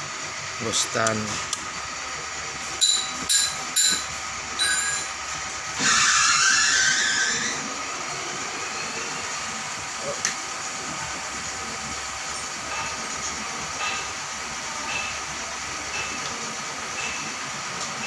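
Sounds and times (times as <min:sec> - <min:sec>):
short metallic clinks: 0:02.8 - 0:05.1
loud gas hiss: 0:05.8 - 0:07.8.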